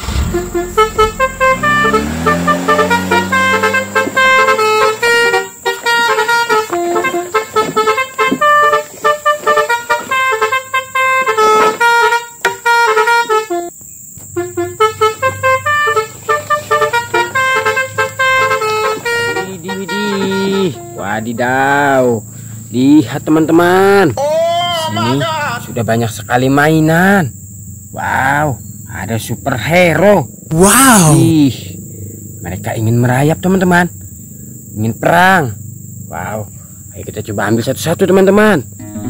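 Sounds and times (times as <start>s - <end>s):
upbeat synth music: 38.8s - 39.0s.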